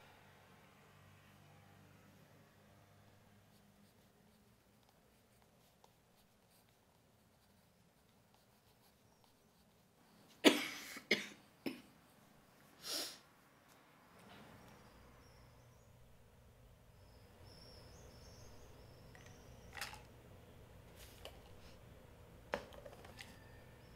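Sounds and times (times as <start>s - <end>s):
pencil scratching on paper: 3.4s - 10.3s
woman coughing: 10.4s - 11.9s.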